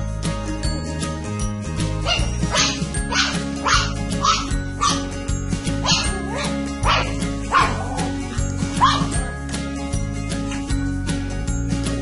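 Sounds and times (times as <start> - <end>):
background music: 0.0 - 12.0
dog barking: 2.0 - 5.0, 5.8 - 8.0, 8.8 - 9.1.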